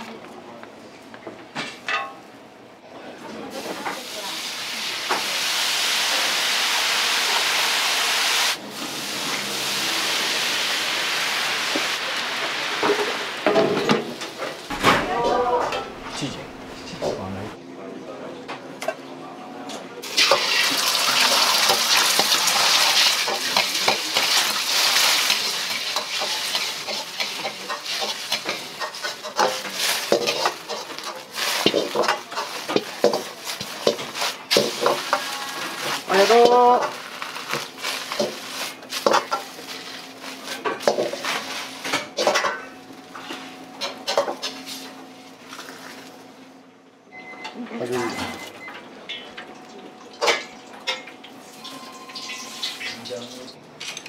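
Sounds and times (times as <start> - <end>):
egg sizzling in a wok: 3.7 - 13.5, 20.0 - 42.5.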